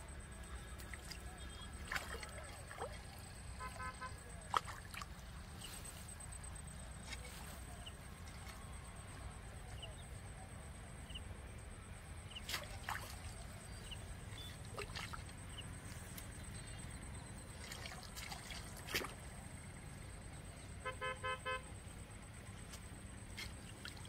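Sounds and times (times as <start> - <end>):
fish splashing at water surface: 0.8 - 5.2, 12.4 - 13.4.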